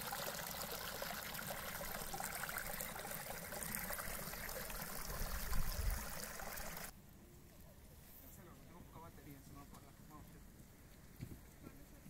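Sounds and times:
water trickling from stone channel: 0.0s - 6.9s.

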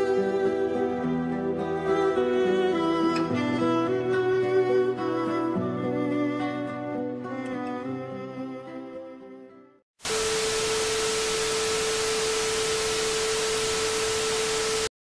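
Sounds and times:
string music: 0.0s - 9.8s
television static hiss: 10.0s - 14.9s.

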